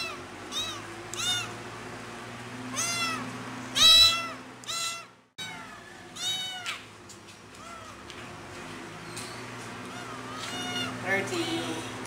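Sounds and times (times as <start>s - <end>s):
kitten meowing loudly: 0.0s - 1.5s, 2.7s - 6.8s, 9.9s - 11.9s.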